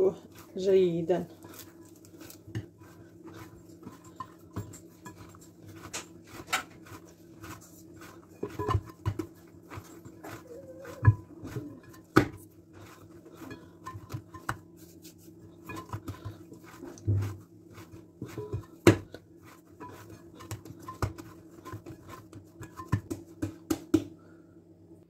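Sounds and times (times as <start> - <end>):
dough slapping against bowl: 0.1 - 24.2.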